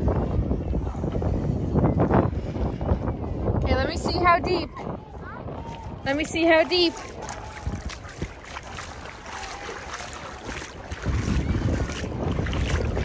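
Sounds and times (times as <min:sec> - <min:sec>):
wind buffeting microphone: 0:00.0 - 0:13.0
splashing from wading: 0:06.1 - 0:13.0.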